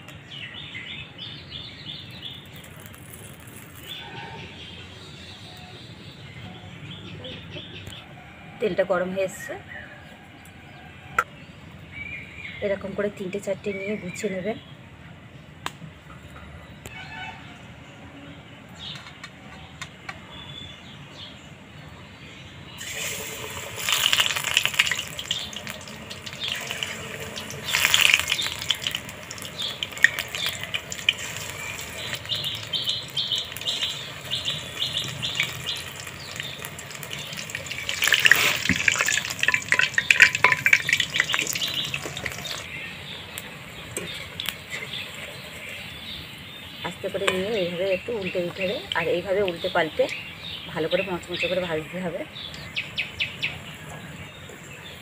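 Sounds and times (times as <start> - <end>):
fritters sizzling in hot oil: 2.2 - 4.0, 22.8 - 46.4.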